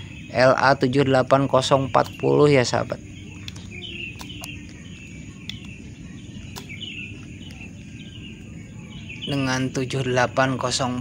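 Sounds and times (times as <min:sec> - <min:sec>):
faint high chirping: 0:00.0 - 0:11.0
low steady noise: 0:00.0 - 0:11.0
sharp clicks: 0:03.4 - 0:04.8.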